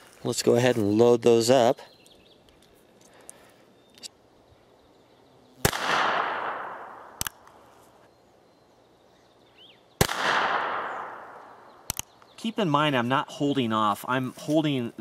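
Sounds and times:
gunshots with echo: 5.6s - 7.2s, 10.0s - 11.4s.

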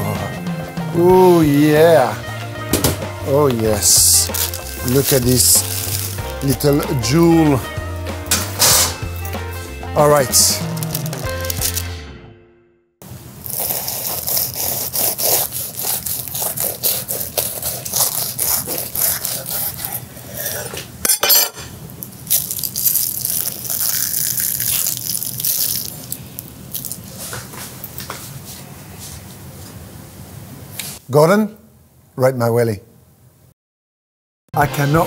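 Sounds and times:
knife crunching through pastry crust: 3.8s - 6.7s, 13.4s - 20.9s, 22.0s - 27.4s.

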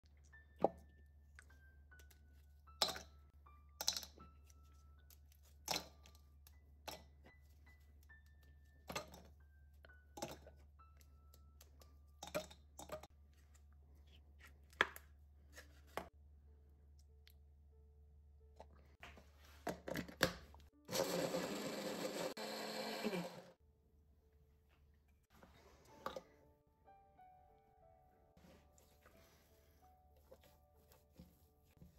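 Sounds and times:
hand blender grinding: 20.9s - 23.6s.

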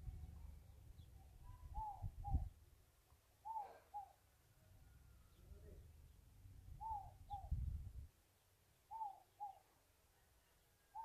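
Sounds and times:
dove cooing: 1.5s - 2.5s, 3.4s - 4.2s, 6.8s - 7.6s, 8.9s - 9.7s.

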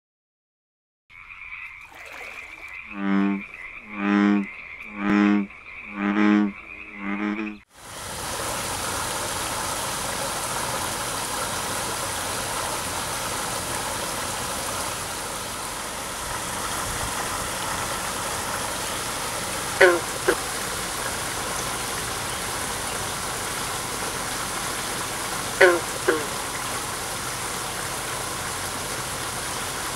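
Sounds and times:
frog croaking: 1.1s - 7.6s, 19.7s - 20.4s, 25.6s - 26.4s
waterfall spilling into pond: 1.9s - 2.7s, 7.7s - 29.9s.

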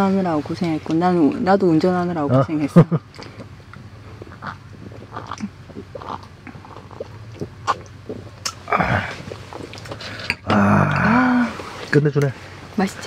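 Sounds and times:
breathy sound: 8.7s - 11.8s.

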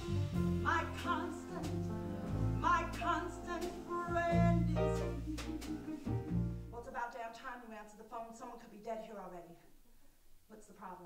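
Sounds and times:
live band playing: 0.0s - 6.7s
low bass notes: 0.0s - 6.8s
woman singing: 0.6s - 2.0s, 2.6s - 7.3s.

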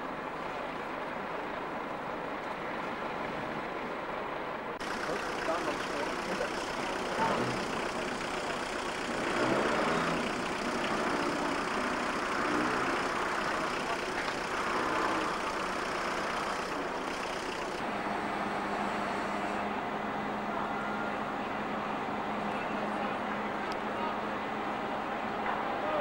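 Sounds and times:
heavy vehicle engine running: 4.5s - 26.0s
faint voices: 4.8s - 17.8s, 19.6s - 26.0s.

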